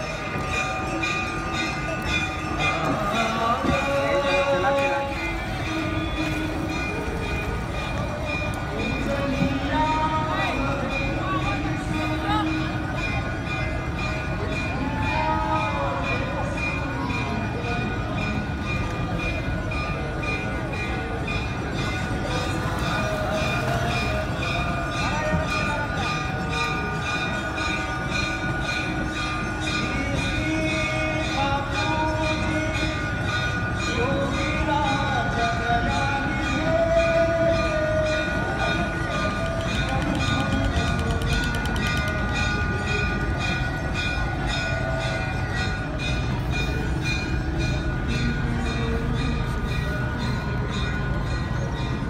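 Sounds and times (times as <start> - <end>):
bells ringing rapidly: 0.0 - 52.0
crowd hubbub: 0.0 - 52.0.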